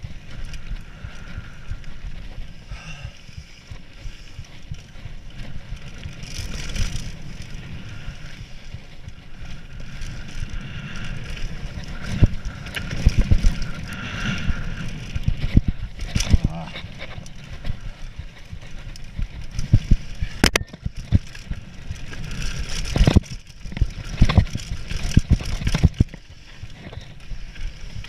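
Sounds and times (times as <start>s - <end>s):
bike knocking and rattling: 0.0s - 28.0s
wind buffeting microphone: 4.5s - 28.0s
tyres rumbling on dirt: 5.0s - 27.2s.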